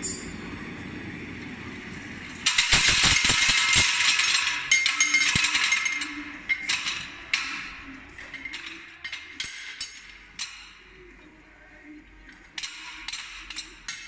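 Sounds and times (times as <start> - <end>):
rotor knives clattering: 2.4 - 11.0, 12.3 - 14.0.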